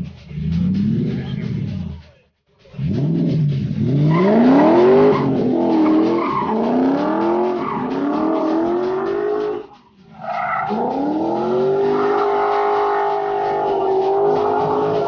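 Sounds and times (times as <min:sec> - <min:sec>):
car engine revving hard: 0:02.8 - 0:09.8, 0:10.6 - 0:15.0
tyres squealing: 0:04.0 - 0:15.0.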